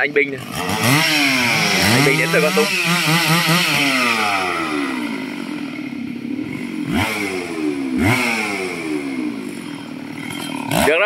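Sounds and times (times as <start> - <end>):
chainsaw engine revving: 0.0 - 11.0.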